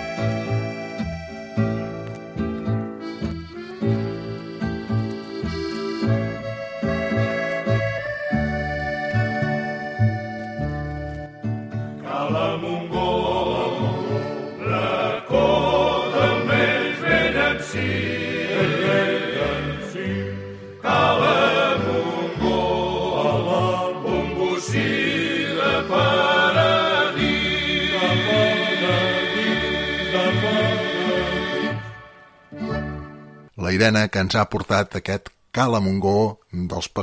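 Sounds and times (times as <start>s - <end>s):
instrumental accompaniment with bass: 0.0s - 33.6s
vocal group singing in harmony: 12.0s - 32.2s.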